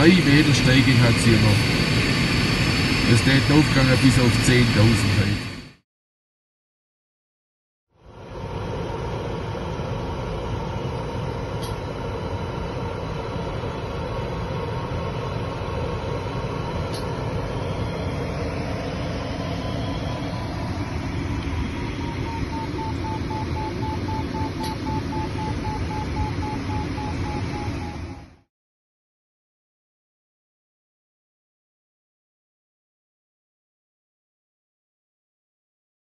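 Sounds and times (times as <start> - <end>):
rushing airflow in cockpit: 0.0 - 5.8, 8.0 - 28.4
electronic variometer tone: 8.2 - 28.5.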